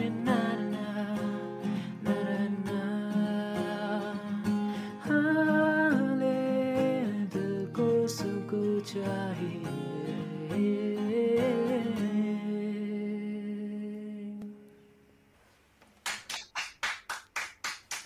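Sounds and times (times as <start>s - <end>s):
man singing: 0.0s - 4.4s, 5.0s - 14.5s
strummed acoustic guitar: 0.0s - 15.0s
people clapping: 16.0s - 18.0s.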